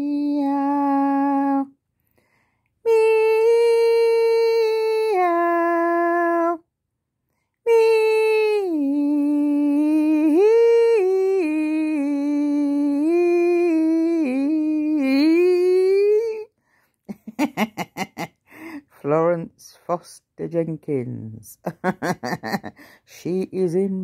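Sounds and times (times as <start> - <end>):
woman humming: 0.0 - 1.7, 2.9 - 6.6, 7.7 - 16.5.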